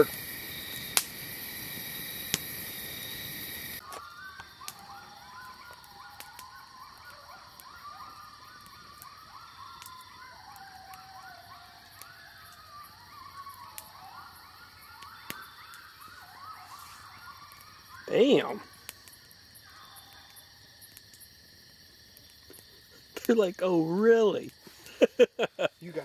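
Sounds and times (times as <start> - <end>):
campfire crackling: 0.0 - 26.0
coyotes yipping and howling: 0.0 - 26.0
insect chorus: 0.0 - 26.0.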